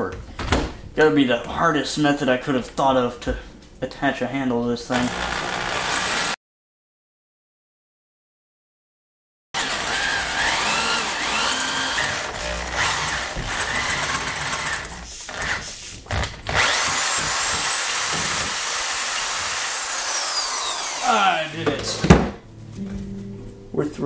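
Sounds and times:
power drill boring into wood: 4.9 - 6.4, 9.6 - 21.6.

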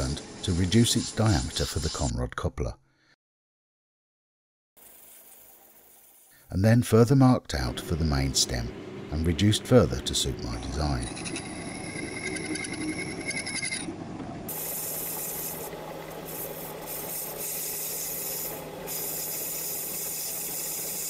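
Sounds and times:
metal lathe humming: 7.8 - 21.0
cutting tool hiss: 14.5 - 15.7, 16.3 - 21.0.

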